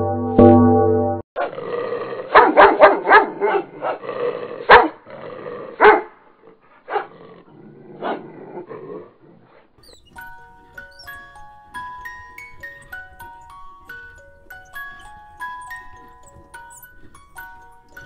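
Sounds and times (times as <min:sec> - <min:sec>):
dog barking: 0:02.3 - 0:04.0, 0:04.6 - 0:05.0, 0:05.8 - 0:06.2, 0:06.8 - 0:07.2, 0:08.0 - 0:08.2
chiming music notes: 0:09.9 - 0:18.0.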